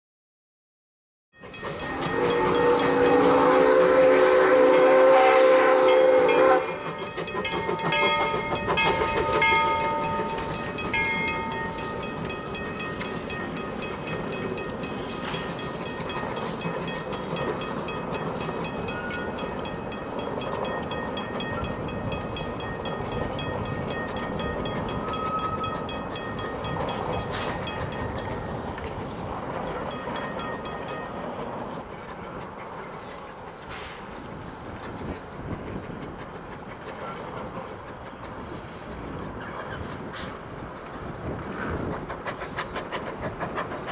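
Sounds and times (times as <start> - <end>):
rail clatter: 1.4 - 43.9
steam locomotive chuffing: 1.4 - 43.9
steam locomotive whistle: 1.6 - 10.6.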